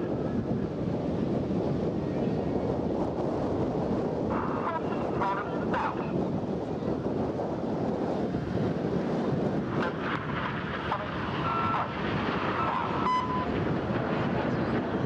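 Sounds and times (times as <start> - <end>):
wind on microphone: 0.0 - 15.0
jets flying overhead: 2.0 - 15.0
faint short beep: 13.0 - 13.5.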